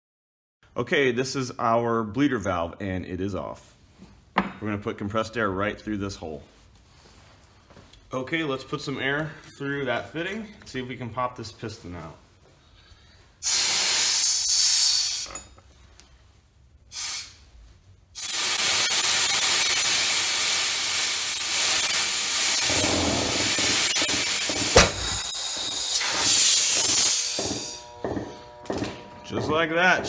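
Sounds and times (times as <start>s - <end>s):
compressed air hissing: 13.4s - 15.4s, 16.9s - 17.5s, 18.2s - 27.8s
piston popping loose with bang: 24.4s - 25.7s.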